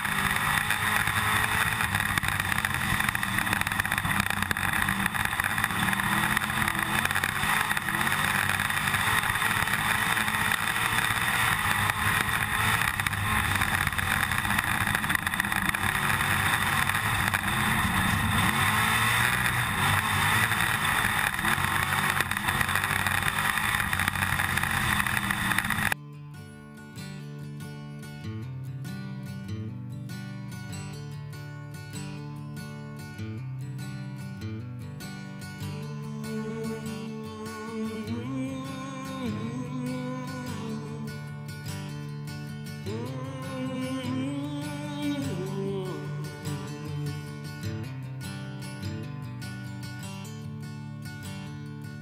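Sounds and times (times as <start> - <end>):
constant rattle: 0.0 - 26.0
race car engine running: 0.0 - 26.0
acoustic guitar music: 0.0 - 52.0.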